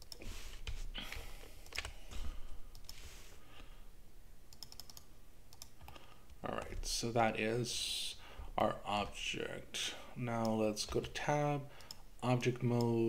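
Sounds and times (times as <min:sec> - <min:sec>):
keyboard and mouse clicking: 0:00.0 - 0:03.0, 0:04.5 - 0:06.9.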